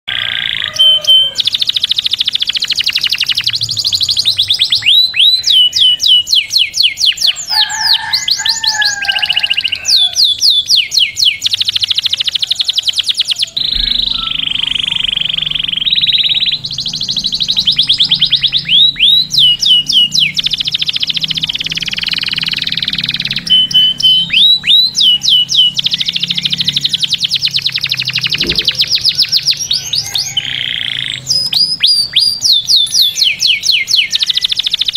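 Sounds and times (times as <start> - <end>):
canary singing trills: 0.1 - 34.9.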